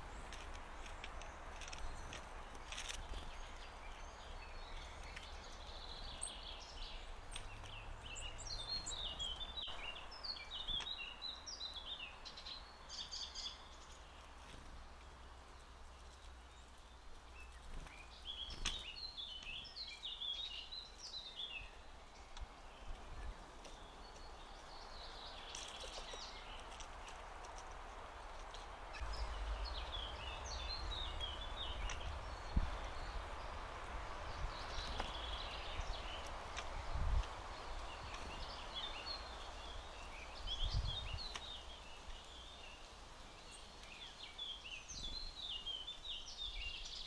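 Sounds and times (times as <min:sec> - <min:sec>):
songbirds chirping: 0:00.0 - 0:47.0
steady low hum: 0:29.0 - 0:35.2.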